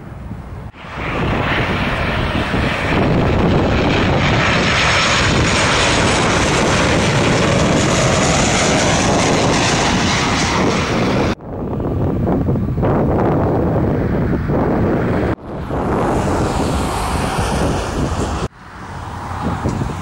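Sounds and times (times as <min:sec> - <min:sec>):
jet airliner flying overhead: 0:00.0 - 0:20.0.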